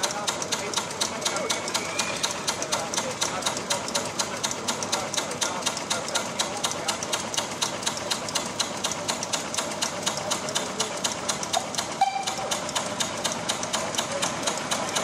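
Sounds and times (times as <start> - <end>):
machine clicking rapidly: 0.0 - 15.0
short tone: 12.0 - 12.4.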